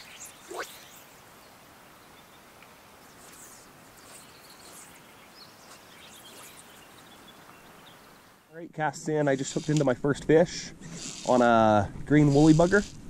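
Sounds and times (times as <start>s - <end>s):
small birds chirping: 0.0s - 8.5s
soft outdoor hiss: 0.0s - 13.0s.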